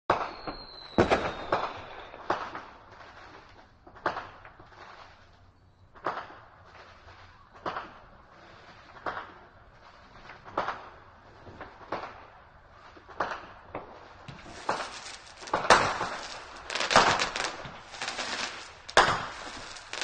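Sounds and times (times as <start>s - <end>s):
thin high whistle: 0.1s - 2.2s
firecrackers banging: 7.6s - 20.0s.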